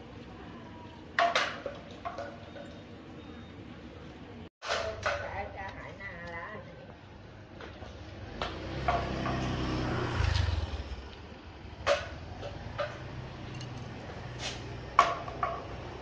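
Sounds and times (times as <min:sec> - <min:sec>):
vehicle engine rumbling: 0:06.9 - 0:16.0.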